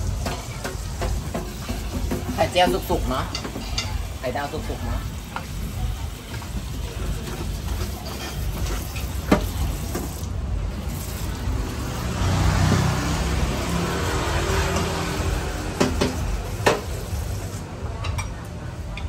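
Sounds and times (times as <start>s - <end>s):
vehicle engine passing: 10.7s - 16.6s.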